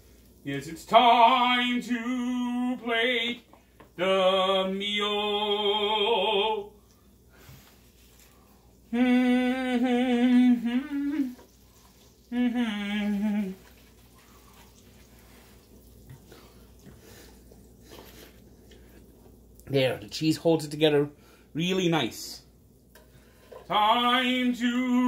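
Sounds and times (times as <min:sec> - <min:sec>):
man humming: 0:08.9 - 0:11.4, 0:12.3 - 0:13.6.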